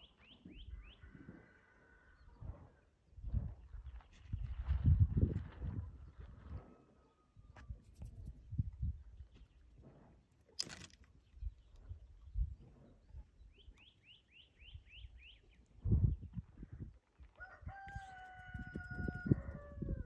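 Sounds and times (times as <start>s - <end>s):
rooster crowing: 17.4s - 20.0s.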